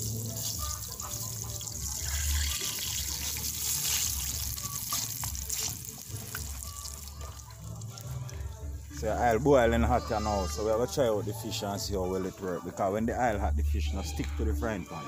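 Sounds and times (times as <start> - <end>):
food sizzling in hot oil: 0.0 - 7.8.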